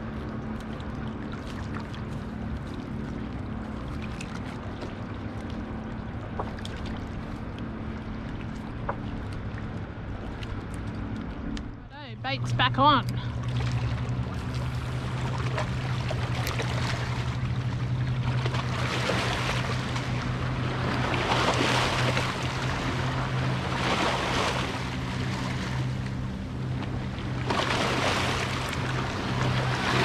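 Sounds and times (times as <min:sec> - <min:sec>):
steady low hum: 0:00.0 - 0:30.0
waves lapping over rocks: 0:12.0 - 0:26.2, 0:27.1 - 0:30.0.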